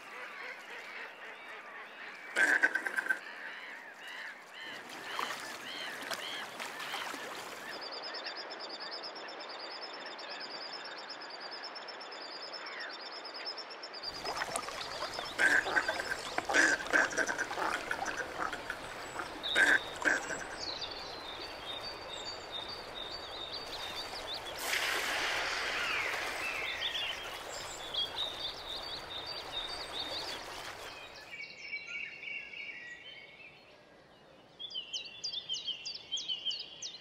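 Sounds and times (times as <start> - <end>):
ducks calling: 0.0 - 7.8, 14.1 - 30.9.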